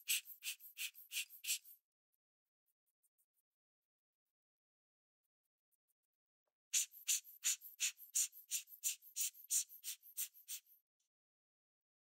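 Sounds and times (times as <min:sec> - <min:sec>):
tool scratching watch dial: 0:00.0 - 0:01.8, 0:06.8 - 0:10.8.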